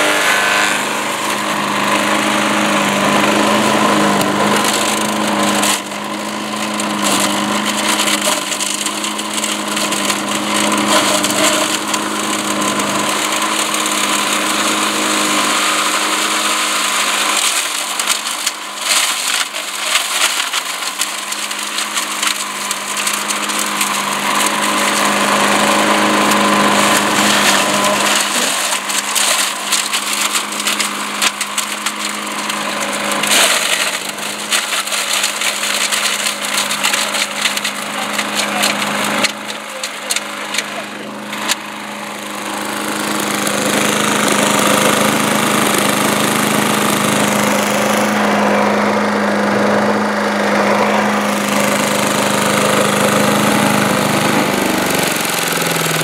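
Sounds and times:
branches crackling and snapping: 0.0 - 44.8
chipper engine running: 0.0 - 56.0.

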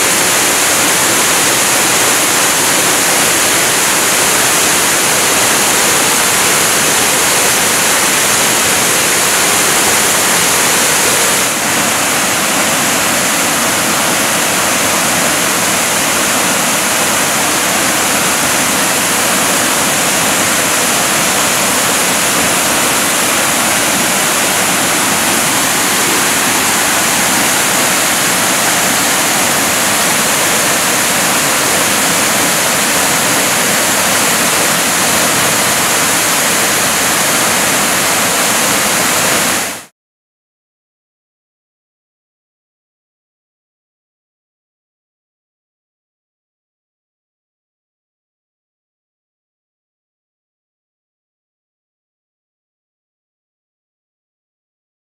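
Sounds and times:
waterfall splashing on pavement: 0.0 - 39.9.

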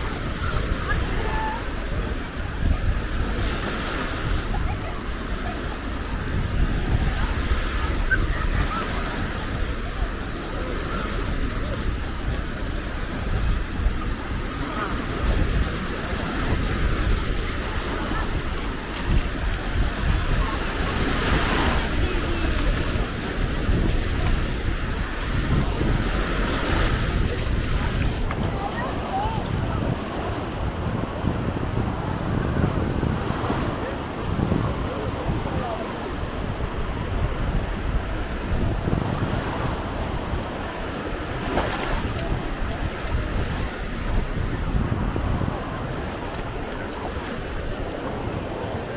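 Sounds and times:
small waves breaking: 0.0 - 31.0, 33.4 - 48.9
wind buffeting microphone: 0.0 - 48.9.

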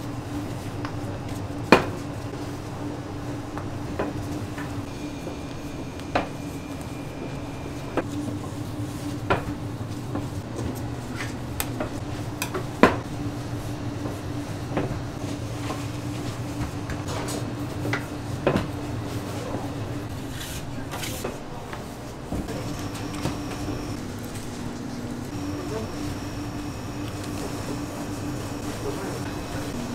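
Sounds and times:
machine hum: 2.4 - 8.1, 22.3 - 29.9.

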